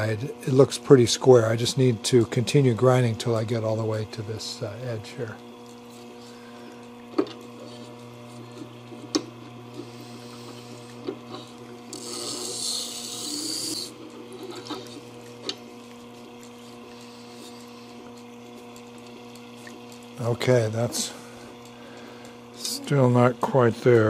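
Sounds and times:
wet grinder motor hum: 0:00.0 - 0:24.0
blade scraping on stone: 0:11.9 - 0:14.9.

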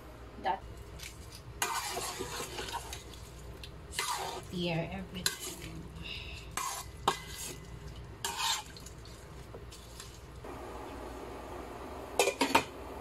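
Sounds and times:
hands mixing wet meat in pot: 0:00.8 - 0:10.5
cooling fan whirring: 0:09.3 - 0:13.0.

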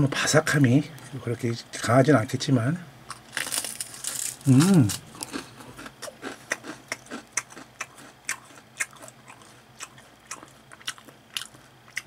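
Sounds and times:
person crunching crisp snack: 0:03.1 - 0:12.0.

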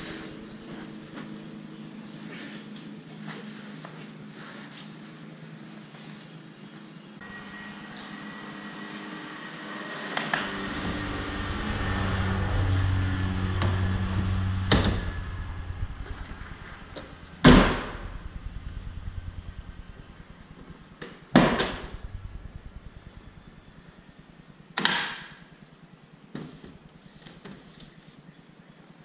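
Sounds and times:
low hum: 0:07.2 - 0:27.3.

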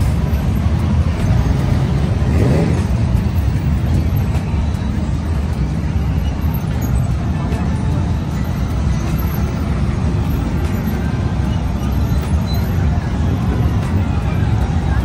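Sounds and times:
motorcycle engines idling: 0:00.0 - 0:15.0
motorcycle engine revving: 0:00.7 - 0:03.9.

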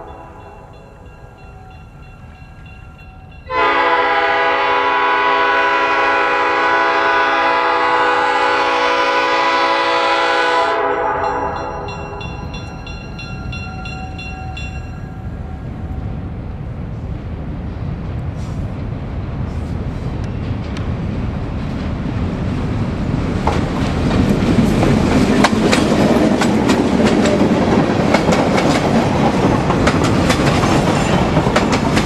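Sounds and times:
crossing bell ringing: 0:00.0 - 0:04.2, 0:10.8 - 0:16.0, 0:30.7 - 0:31.6
locomotive air horn blast: 0:03.5 - 0:11.9.

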